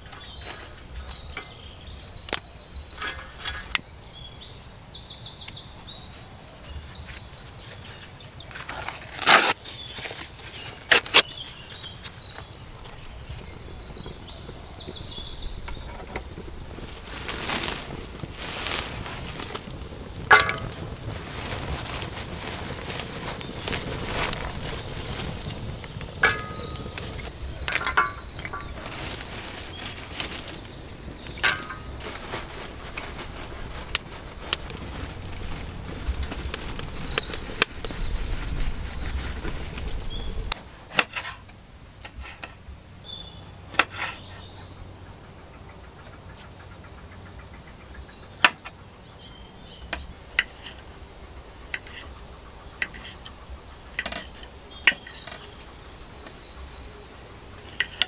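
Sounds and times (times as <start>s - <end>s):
wood fire crackling in stove: 0.0s - 4.6s, 6.7s - 42.6s
birds chirping: 0.0s - 41.3s, 42.1s - 58.0s.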